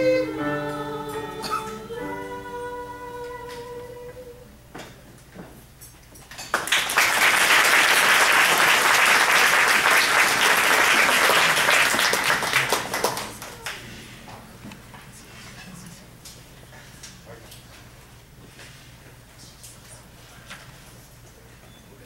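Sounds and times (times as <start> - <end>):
women singing held chord: 0.0 - 4.6
audience applauding: 6.5 - 13.9.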